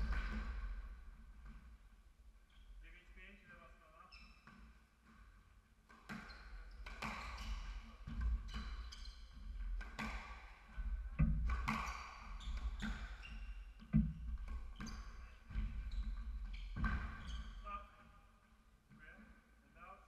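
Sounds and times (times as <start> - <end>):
shoes squeaking on wooden floor: 6.0 - 18.0.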